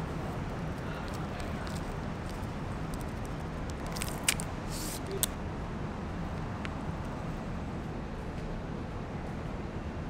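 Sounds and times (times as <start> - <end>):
low city rumble: 0.0 - 10.0
paper rustle: 0.4 - 5.3.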